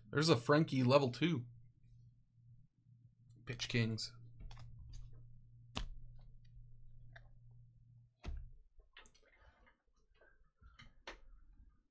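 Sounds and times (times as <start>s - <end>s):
low steady hum: 0.0s - 8.9s.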